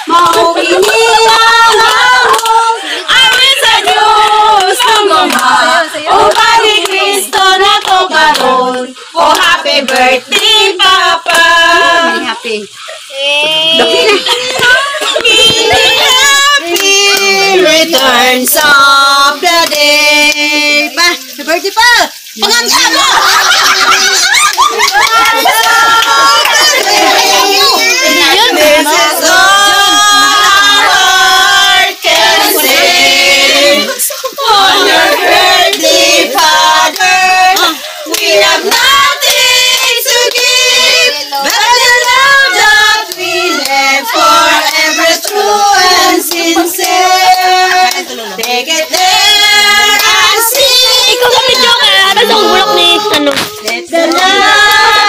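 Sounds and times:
women and children singing: 0.0 - 55.0.

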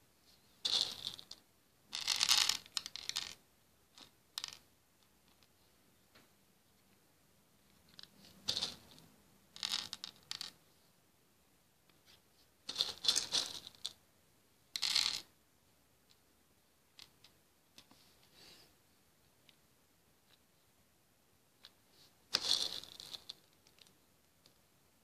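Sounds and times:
plastic beads clattering: 0.6 - 3.4, 8.0 - 9.0, 9.6 - 10.6, 12.7 - 14.0, 14.8 - 15.3, 22.3 - 23.9.

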